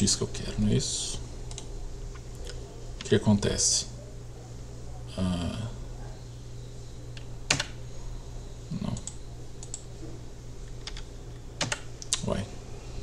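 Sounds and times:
steady low hum: 0.0 - 13.0
keyboard keystrokes: 11.6 - 11.8.

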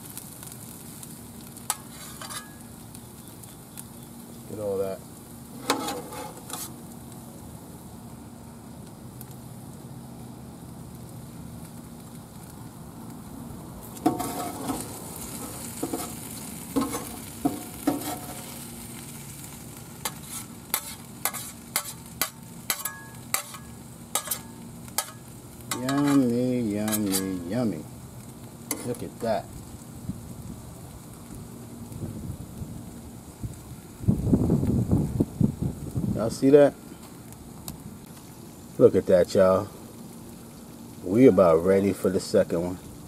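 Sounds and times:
food sizzling on a griddle: 0.0 - 43.0
metal spatula scraping and clicking: 1.7 - 2.6, 5.6 - 6.7, 14.0 - 14.9, 16.8 - 18.4, 20.0 - 27.4.

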